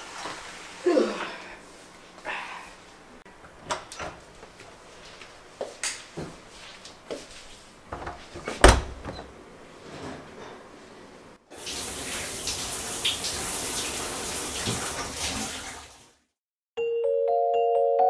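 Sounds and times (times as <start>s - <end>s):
tap running water into a sink: 11.5s - 16.1s.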